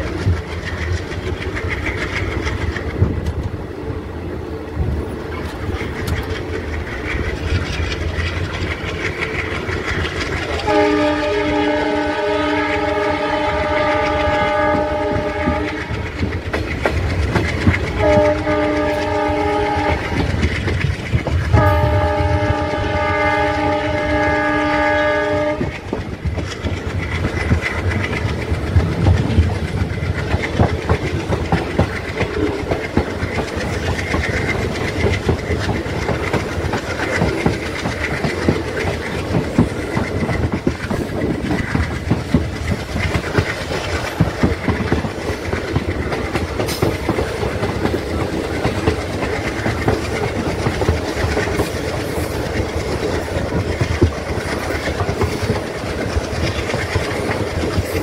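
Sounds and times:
train rumble and wheel clatter: 0.0 - 58.0
locomotive horn blasts: 10.6 - 15.9, 18.0 - 20.2, 21.5 - 25.7.

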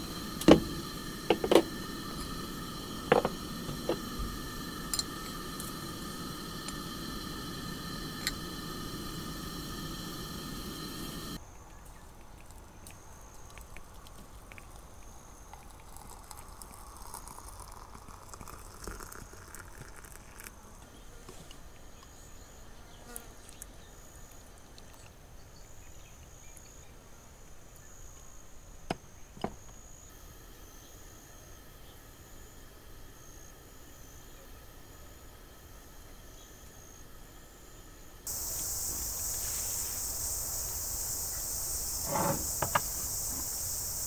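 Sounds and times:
hot water poured into teapot: 0.0 - 11.4, 13.3 - 20.6, 38.3 - 44.0
tea poured into mug: 0.0 - 11.4, 12.0 - 20.6
insects chirring: 0.0 - 21.2, 21.8 - 44.0.

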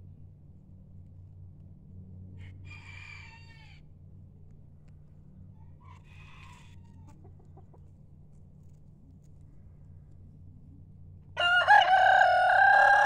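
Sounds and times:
steady low hum: 0.0 - 2.7, 3.6 - 6.1, 6.8 - 11.4
rooster crowing: 2.4 - 3.8, 5.6 - 7.2, 11.4 - 13.0.

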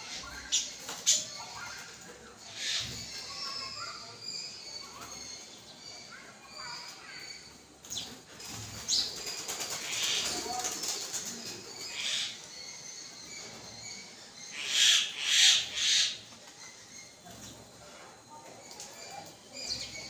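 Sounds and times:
wings fluttering: 7.8 - 12.0.

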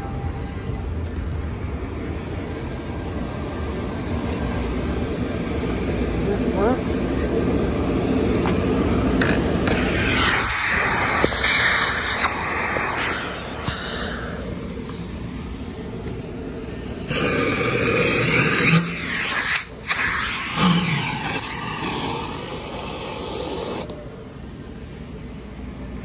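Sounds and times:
vacuum rushing air: 0.6 - 24.9.

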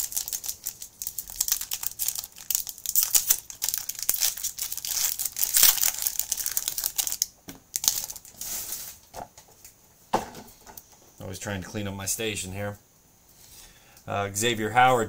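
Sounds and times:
plastic wrappers crinkling: 0.0 - 9.0.

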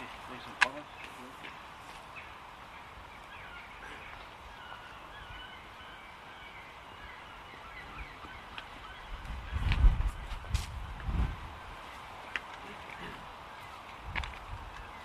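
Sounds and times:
faint outdoor hiss: 0.0 - 15.0.

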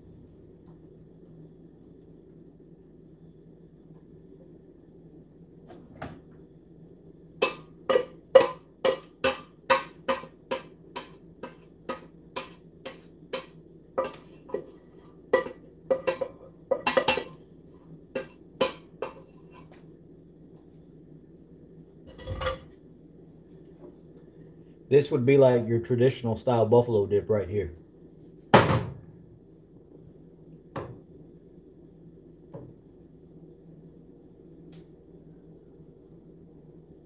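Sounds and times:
spatula knocking on ceramic dish: 7.4 - 14.7, 15.3 - 17.4, 18.1 - 19.2.

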